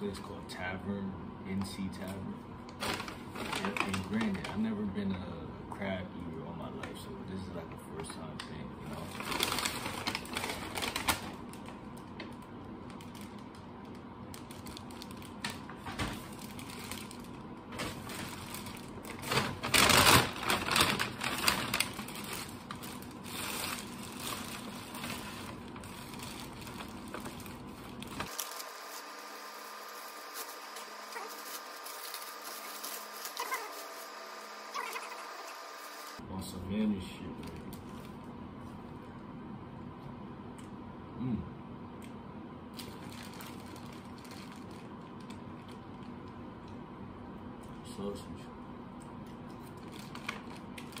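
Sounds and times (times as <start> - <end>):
paper bag rustling: 2.7 - 4.7, 8.9 - 11.8, 14.3 - 36.2, 42.8 - 45.8
plastic bag crinkling: 2.7 - 4.7, 8.9 - 36.2, 42.7 - 46.1, 49.6 - 51.0.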